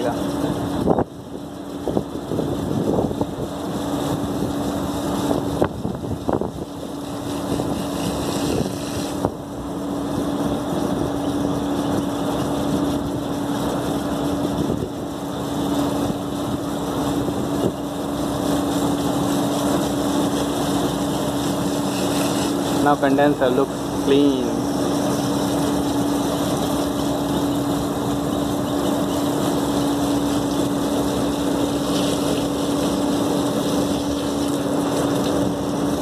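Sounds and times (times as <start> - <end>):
pressure washer motor hum: 0.0 - 36.0
water spray hissing: 19.9 - 28.0.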